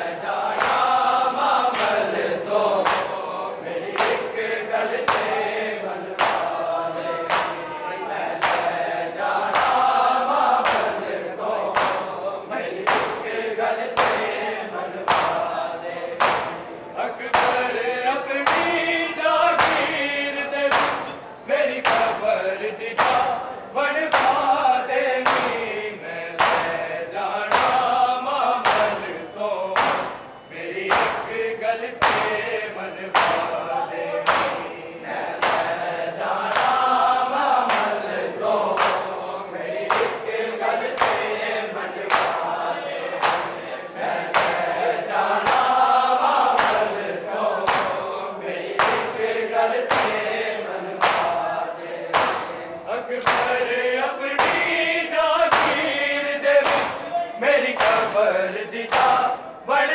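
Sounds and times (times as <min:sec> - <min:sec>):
men chanting in chorus: 0:00.0 - 0:59.9
hands slapping bare chests: 0:00.5 - 0:01.0, 0:01.7 - 0:02.0, 0:02.8 - 0:03.2, 0:03.9 - 0:04.2, 0:05.0 - 0:05.4, 0:06.2 - 0:06.6, 0:07.3 - 0:07.6, 0:08.4 - 0:08.8, 0:09.4 - 0:11.0, 0:11.7 - 0:12.2, 0:12.8 - 0:13.2, 0:13.9 - 0:14.4, 0:15.1 - 0:15.5, 0:16.2 - 0:16.6, 0:17.3 - 0:17.6, 0:18.4 - 0:18.8, 0:19.6 - 0:20.0, 0:20.7 - 0:21.2, 0:21.8 - 0:22.2, 0:23.0 - 0:23.4, 0:24.1 - 0:24.4, 0:25.2 - 0:25.6, 0:26.4 - 0:26.8, 0:27.5 - 0:27.9, 0:28.6 - 0:29.0, 0:29.8 - 0:30.2, 0:30.9 - 0:31.3, 0:32.0 - 0:32.4, 0:33.1 - 0:33.6, 0:34.2 - 0:34.7, 0:35.4 - 0:35.8, 0:36.5 - 0:37.0, 0:37.6 - 0:38.0, 0:38.8 - 0:39.1, 0:39.9 - 0:40.3, 0:41.0 - 0:41.3, 0:42.1 - 0:42.4, 0:43.2 - 0:43.5, 0:44.3 - 0:44.7, 0:45.3 - 0:45.7, 0:46.5 - 0:46.9, 0:47.6 - 0:48.0, 0:48.8 - 0:49.2, 0:49.8 - 0:50.3, 0:51.0 - 0:51.4, 0:52.1 - 0:52.6, 0:53.2 - 0:53.6, 0:54.4 - 0:54.8, 0:55.5 - 0:56.0, 0:56.6 - 0:57.1, 0:57.7 - 0:58.2, 0:58.9 - 0:59.2.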